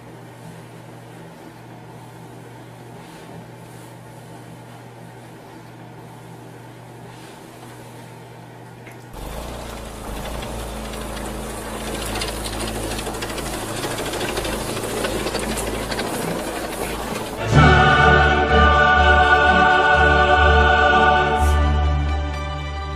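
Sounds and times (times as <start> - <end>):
steady low hum: 0.0 - 21.7
lawn mower engine running: 9.1 - 18.3.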